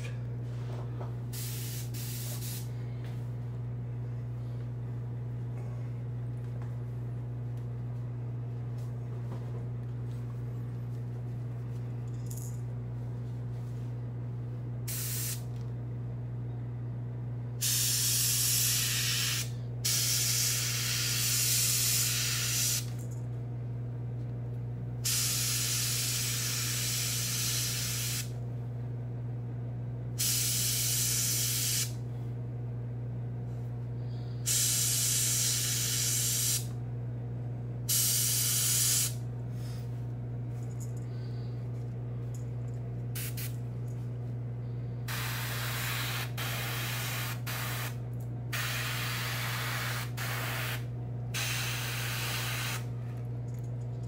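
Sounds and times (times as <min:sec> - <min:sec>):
steady low hum: 0:00.0 - 0:54.0
airbrush spraying hiss: 0:01.4 - 0:02.7, 0:14.9 - 0:15.4, 0:17.6 - 0:22.9, 0:25.0 - 0:28.3, 0:30.2 - 0:31.9, 0:34.5 - 0:36.7, 0:37.9 - 0:39.2, 0:43.2 - 0:43.5, 0:45.1 - 0:47.9, 0:48.6 - 0:50.8, 0:51.4 - 0:52.8.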